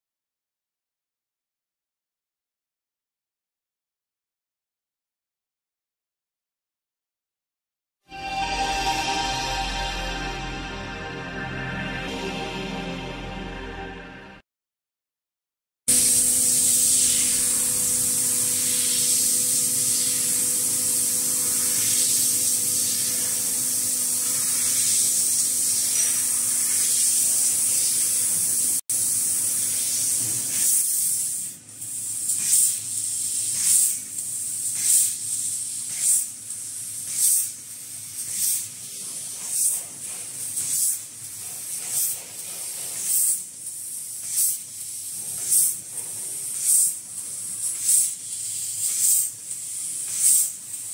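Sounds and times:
laser cutter hissing: 15.9 - 50.9.

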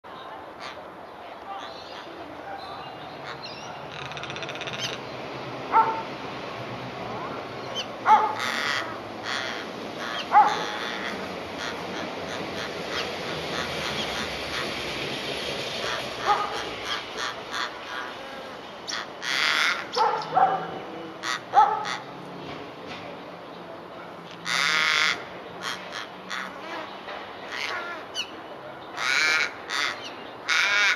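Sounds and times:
raven calling harshly: 3.1 - 5.0, 7.8 - 14.9, 15.8 - 22.1, 24.4 - 26.9, 27.5 - 28.3, 29.0 - 30.9.

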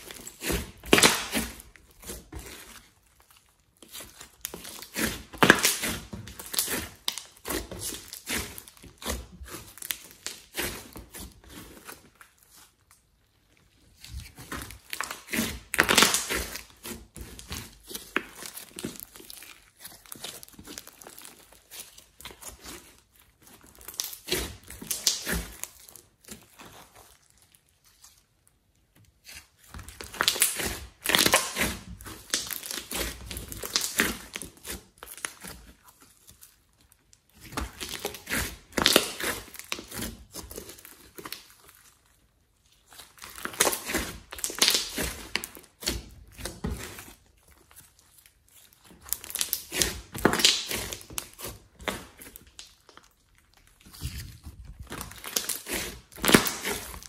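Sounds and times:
sticky slime crackling and clicking: 23.5 - 27.5, 29.9 - 35.5, 42.9 - 46.9, 48.8 - 57.0.

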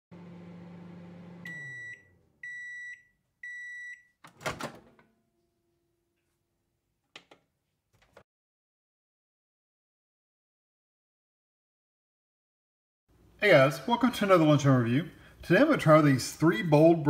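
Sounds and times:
microwave oven humming: 0.1 - 2.8
microwave beeps: 1.1 - 4.2.

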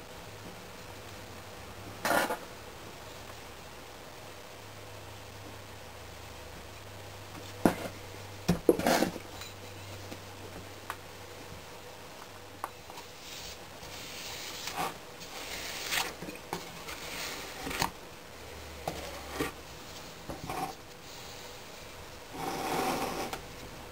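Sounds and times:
steel bar scraping sand: 22.3 - 23.4.

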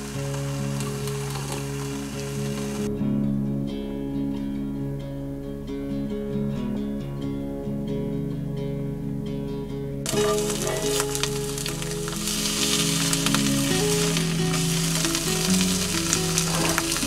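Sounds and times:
eggs sizzling in a skillet: 0.0 - 2.9, 10.1 - 17.0
spatula scraping under eggs: 10.1 - 17.0.

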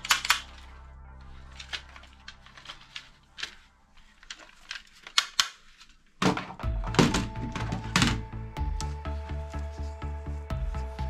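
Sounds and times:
plastic toy guns clicking: 0.0 - 0.6, 4.2 - 6.0
background music with a beat: 6.6 - 11.0.

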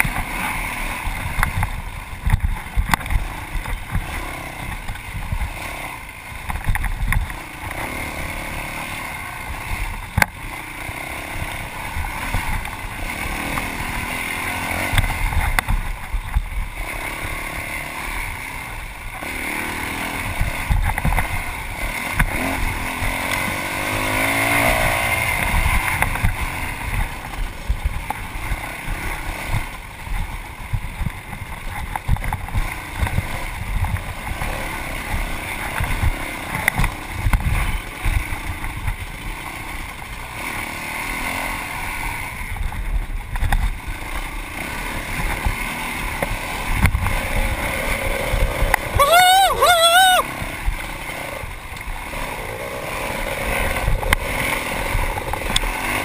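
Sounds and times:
dirt bike engine revving: 0.0 - 56.0
knocks and thumps from rough ground: 1.1 - 5.5, 20.6 - 22.6, 23.2 - 39.1, 42.6 - 44.3.

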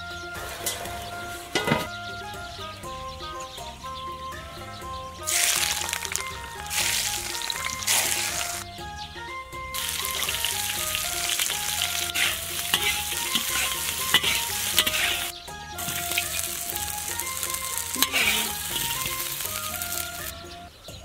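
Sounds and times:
shrimp sizzling in hot oil: 5.2 - 8.6, 9.8 - 20.3
metal spatula scraping a wok: 9.8 - 20.2.

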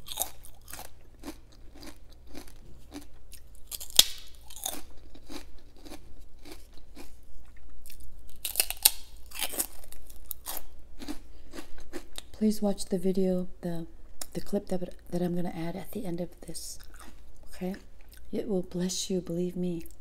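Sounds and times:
crunching and chewing crackers: 0.0 - 12.4, 16.7 - 18.3.

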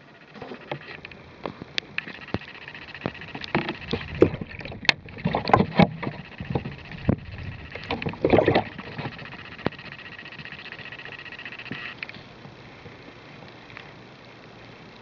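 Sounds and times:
sharp clicks: 0.2 - 12.2
water splashing in bucket: 7.9 - 9.2.

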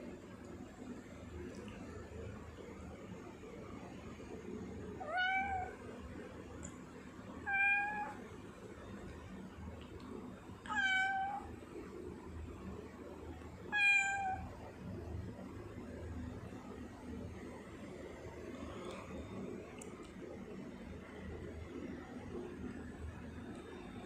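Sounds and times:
cat meowing: 5.0 - 5.8, 7.4 - 8.2, 10.7 - 11.5, 13.7 - 14.5.

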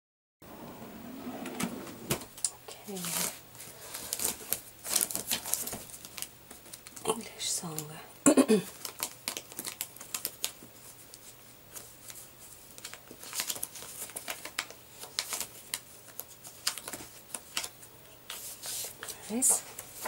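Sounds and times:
papers being flipped through: 3.0 - 7.0, 8.7 - 20.0.

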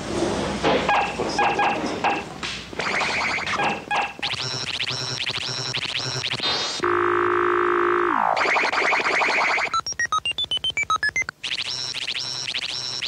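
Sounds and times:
buzzy synth tone: 2.8 - 13.0
warbling electronic chirps: 2.8 - 13.0.

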